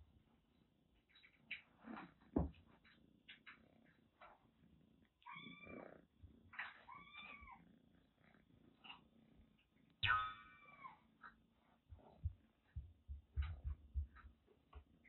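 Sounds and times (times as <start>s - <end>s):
kitten meowing: 6.8s - 7.6s.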